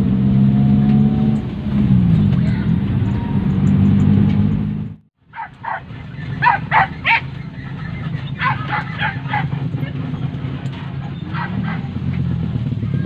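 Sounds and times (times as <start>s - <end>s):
car driving: 0.0s - 13.0s
dogs barking: 5.3s - 12.4s
car engine idling: 5.3s - 13.0s.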